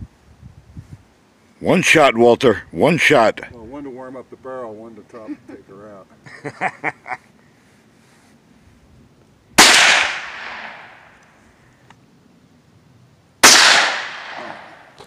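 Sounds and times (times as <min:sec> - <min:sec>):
rifle shots with echo: 0:09.6 - 0:11.1, 0:13.4 - 0:15.0.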